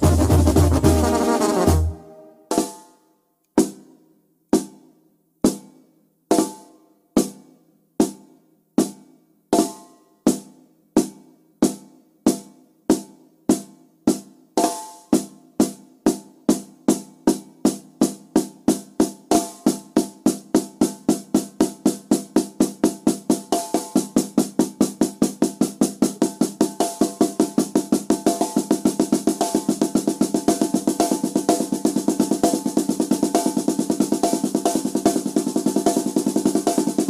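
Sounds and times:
drum beats speeding up: 0:00.0 - 0:02.8, 0:19.8 - 0:37.0.

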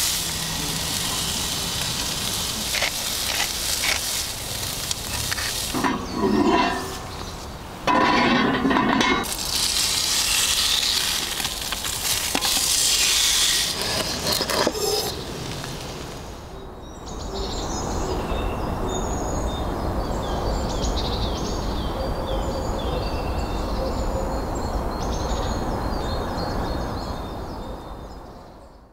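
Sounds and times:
food sizzling on a grill: 0:00.0 - 0:07.3, 0:07.9 - 0:16.2
birds chirping: 0:00.0 - 0:09.3
outdoor background noise: 0:00.0 - 0:28.9.

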